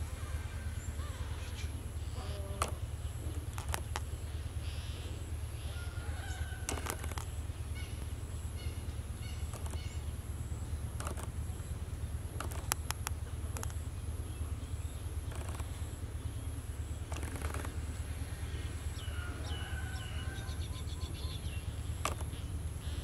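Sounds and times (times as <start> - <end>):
rustling and clicks: 2.6 - 4.1, 6.7 - 7.3, 11.0 - 11.4, 12.4 - 13.8, 15.3 - 15.8, 22.0 - 22.4.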